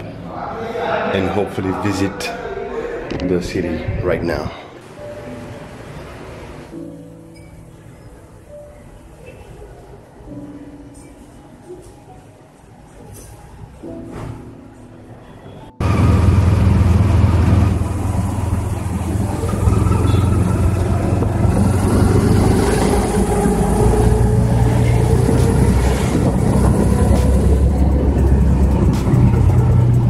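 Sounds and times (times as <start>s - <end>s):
road noise: 4.8s - 30.0s
vehicle engine running: 15.8s - 30.0s
wind noise: 15.9s - 30.0s.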